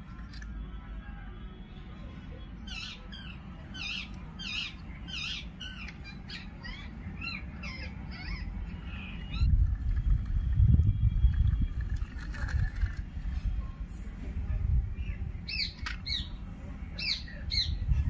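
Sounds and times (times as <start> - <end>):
bird chirping: 2.6 - 12.1, 15.0 - 16.4
low background rumble: 2.8 - 18.0.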